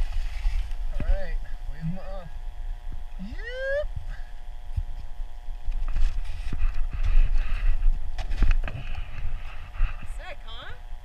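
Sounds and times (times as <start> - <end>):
skis and poles scraping snow: 0.0 - 0.8, 5.8 - 10.4.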